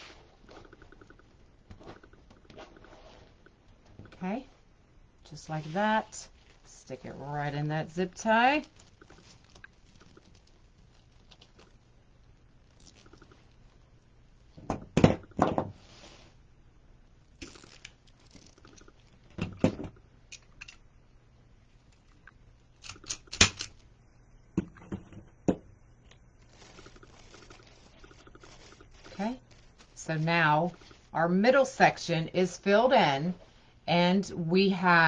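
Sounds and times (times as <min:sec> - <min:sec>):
plastic mesh crinkling: 0:05.6 - 0:14.6, 0:17.4 - 0:19.5, 0:26.1 - 0:31.2.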